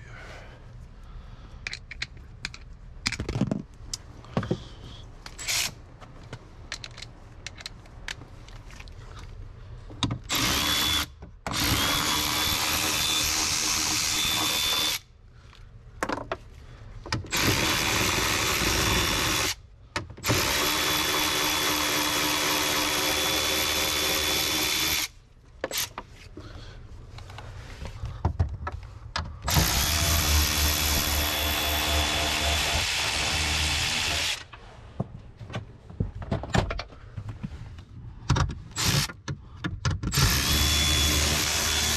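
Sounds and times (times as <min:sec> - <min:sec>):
cordless drill motor whine: 0:10.3 - 0:15.0, 0:29.5 - 0:34.4, 0:40.1 - 0:41.9.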